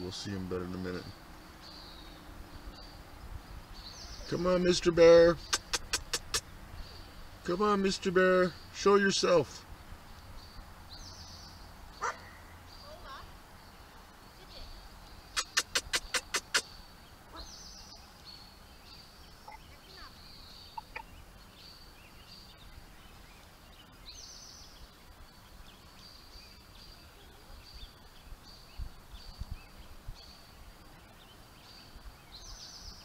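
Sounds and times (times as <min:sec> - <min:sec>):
songbirds chirping and trilling: 0:00.0 - 0:33.0
bird repeating sweeping phrase: 0:04.0 - 0:06.4, 0:15.3 - 0:16.7.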